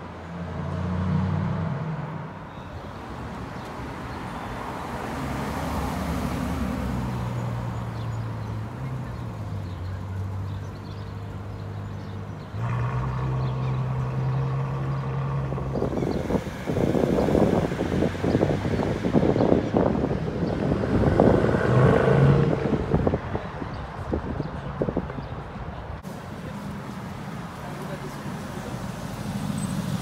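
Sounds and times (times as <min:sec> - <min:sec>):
sports car pulling away: 0:11.8 - 0:23.2.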